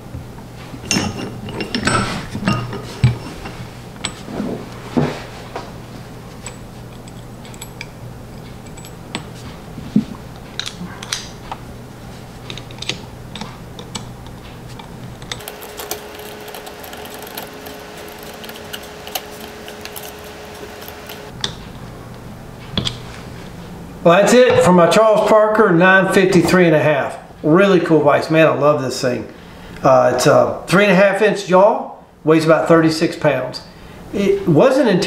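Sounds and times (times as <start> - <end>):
screwdriver clicking on metal: 12.5 - 21.4.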